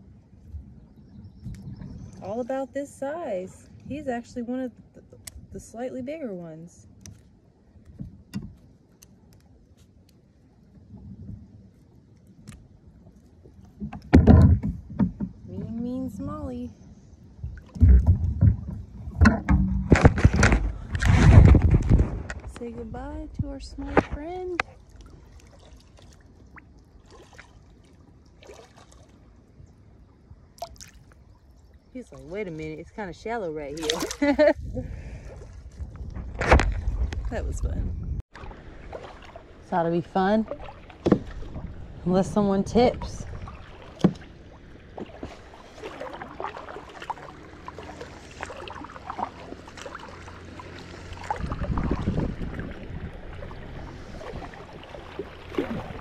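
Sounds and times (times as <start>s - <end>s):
light water splashes: 17.4s - 56.0s
creek water trickling: 21.8s - 56.0s
low rumble: 34.2s - 56.0s.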